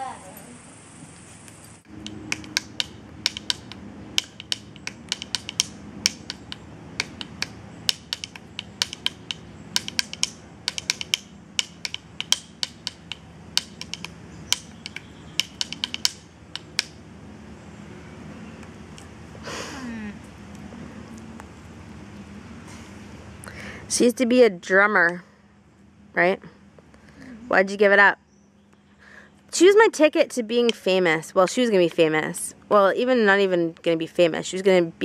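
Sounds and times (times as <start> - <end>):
low steady hum: 0.0 - 35.0
wooden sticks tapping: 1.9 - 17.0, 30.7 - 31.0.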